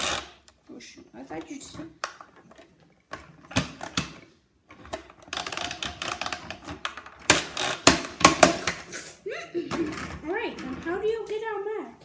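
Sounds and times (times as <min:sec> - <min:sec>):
hard plastic toy clicking: 0:04.9 - 0:08.7.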